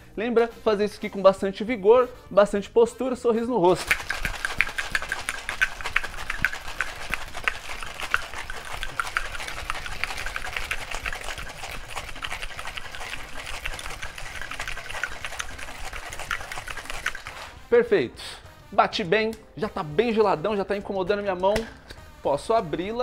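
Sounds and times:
ice rattling in cocktail shaker: 0:03.7 - 0:17.6.

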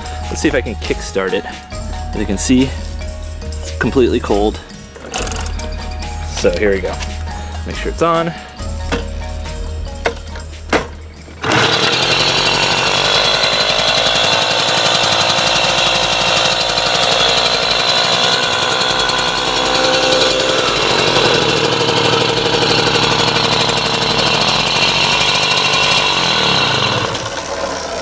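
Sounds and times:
moped engine running: 0:08.6 - 0:28.0.

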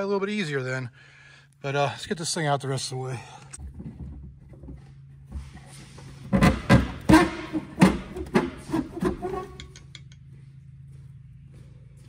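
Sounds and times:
plastic box knocking and scraping: 0:03.6 - 0:09.4.

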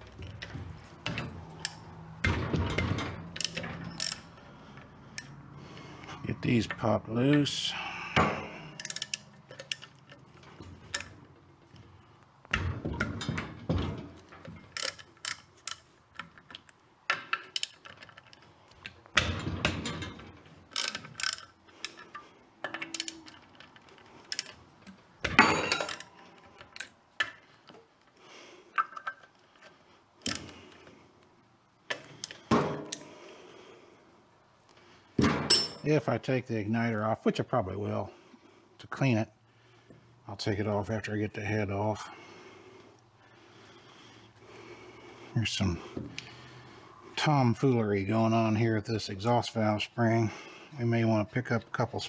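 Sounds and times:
metal clanks and knocks: 0:00.0 - 0:04.4, 0:12.4 - 0:16.3, 0:19.1 - 0:23.7, 0:25.2 - 0:27.4, 0:35.2 - 0:35.9.

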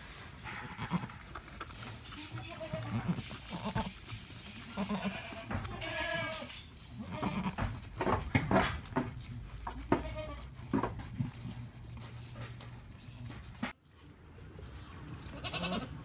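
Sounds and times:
goats bleating: 0:00.7 - 0:01.2, 0:02.3 - 0:07.7, 0:09.8 - 0:10.6, 0:15.3 - 0:16.0
goat licking wet clicks: 0:00.9 - 0:05.4.

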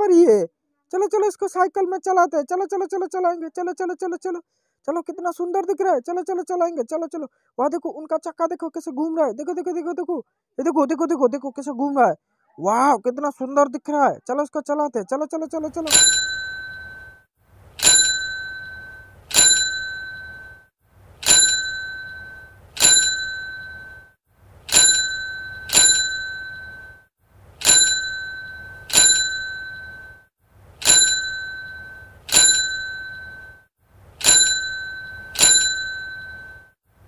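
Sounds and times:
small metal bell ringing: 0:15.8 - 0:17.2, 0:17.8 - 0:36.8.

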